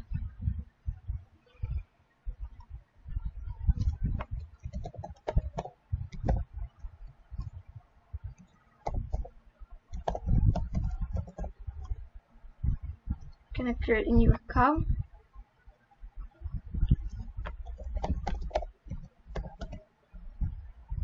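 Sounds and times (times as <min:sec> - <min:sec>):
keyboard typing clicks: 0:03.8 - 0:06.4, 0:08.4 - 0:09.3, 0:09.9 - 0:11.9, 0:17.1 - 0:19.8.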